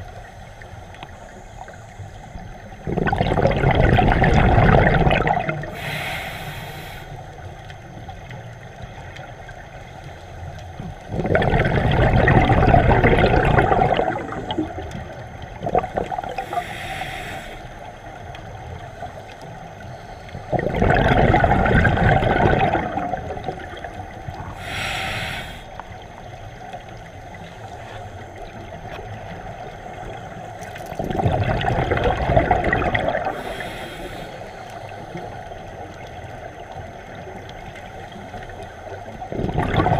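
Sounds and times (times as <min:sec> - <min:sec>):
exhaust bubbles rushing: 0:02.8 - 0:05.8, 0:11.1 - 0:16.6, 0:20.5 - 0:24.6, 0:30.8 - 0:33.4, 0:39.2 - 0:39.9
regulator inhale hiss: 0:05.5 - 0:07.8, 0:16.2 - 0:18.2, 0:24.4 - 0:26.0, 0:33.2 - 0:35.5.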